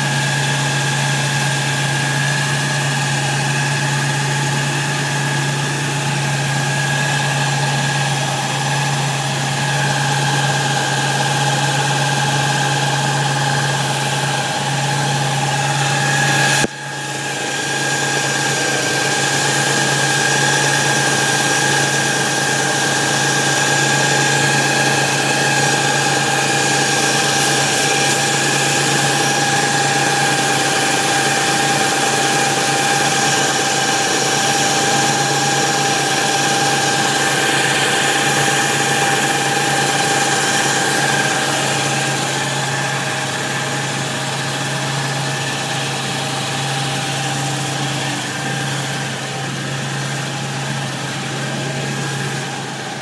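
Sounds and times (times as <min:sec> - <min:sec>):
car engine idling: 0:00.0 - 0:53.0.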